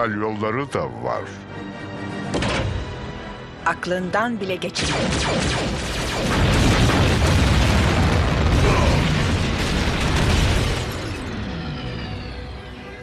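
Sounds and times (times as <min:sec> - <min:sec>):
music: 0:00.0 - 0:06.8, 0:10.0 - 0:13.0
loud explosion blast: 0:05.2 - 0:11.4.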